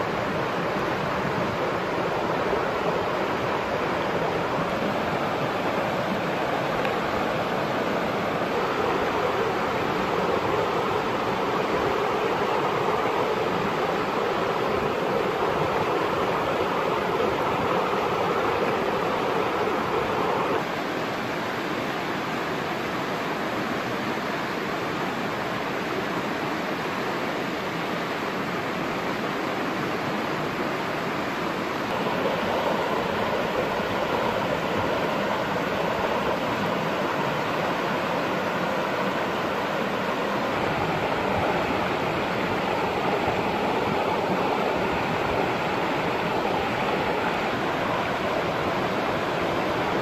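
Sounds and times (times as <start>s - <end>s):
stream rushing over rocks: 0.0s - 50.0s.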